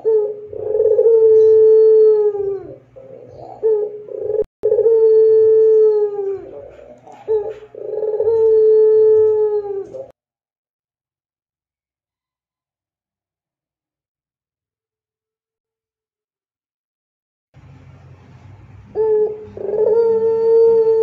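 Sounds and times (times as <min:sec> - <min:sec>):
dove cooing: 0:00.0 - 0:10.2, 0:18.9 - 0:21.0.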